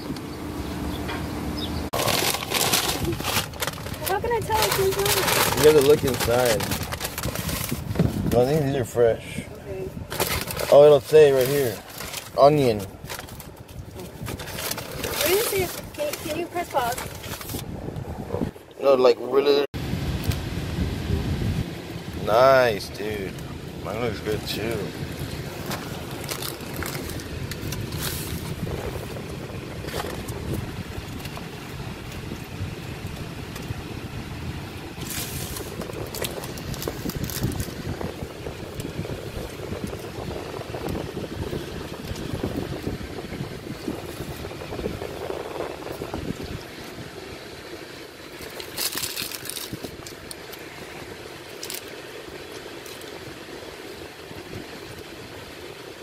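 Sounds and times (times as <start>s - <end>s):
low rumble in car cabin: 0.0s - 48.4s
paper wrapper crinkling: 1.9s - 8.3s, 10.1s - 17.7s, 25.2s - 29.2s, 35.0s - 40.0s, 48.4s - 50.6s, 51.4s - 53.2s.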